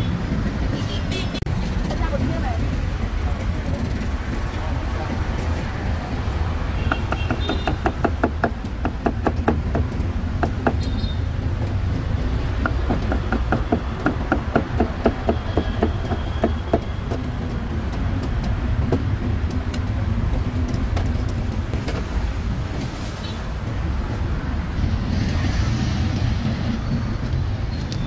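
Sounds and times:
low street rumble: 0:00.0 - 0:28.0
cleaver chopping meat on wood: 0:06.8 - 0:10.9, 0:12.6 - 0:19.1.

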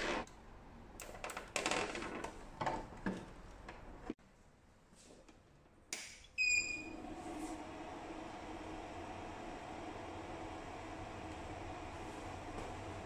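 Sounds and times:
cooling fan hum: 0:06.9 - 0:13.0.

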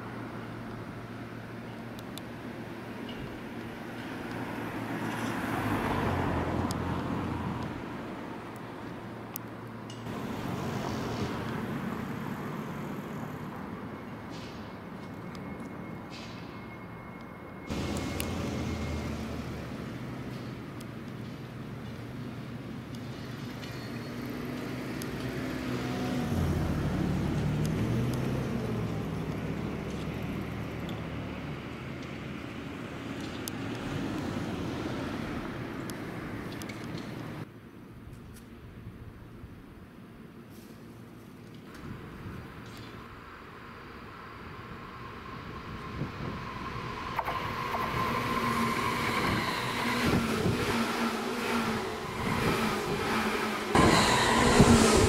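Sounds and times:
train wheels humming on rails: 0:00.0 - 0:37.5, 0:40.8 - 0:55.0
electric train equipment humming: 0:15.3 - 0:21.0, 0:41.8 - 0:55.0.

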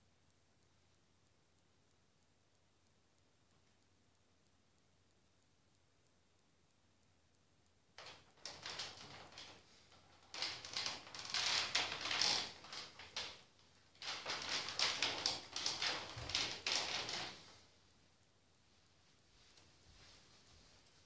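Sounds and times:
wooden chair creaking and clicking: 0:08.0 - 0:17.6.

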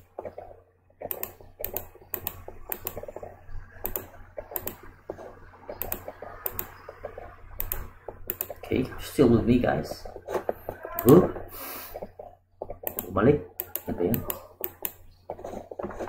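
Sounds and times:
mouse and keyboard clicking: 0:00.0 - 0:08.6, 0:11.9 - 0:16.0.

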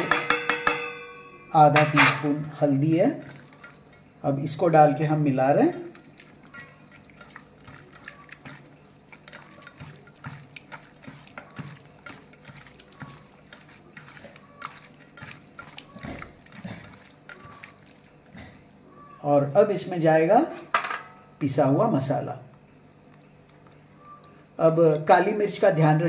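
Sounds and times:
hand squishing meat in marinade: 0:01.8 - 0:18.4
small irregular clicks: 0:23.0 - 0:24.4.

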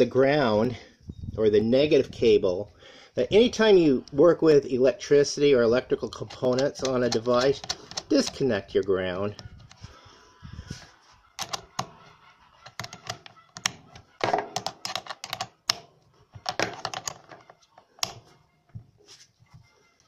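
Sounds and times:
wrench clicking on metal bolt: 0:06.1 - 0:08.5.

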